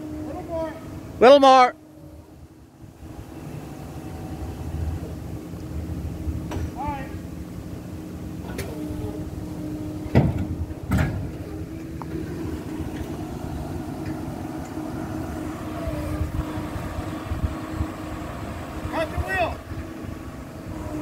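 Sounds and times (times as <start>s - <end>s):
engine running at low revs: 0.0s - 21.0s.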